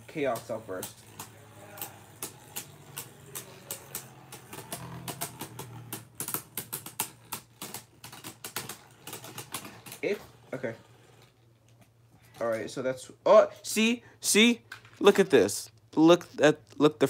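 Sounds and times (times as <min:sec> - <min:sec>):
spinning tops clashing and grinding: 0:00.0 - 0:11.4.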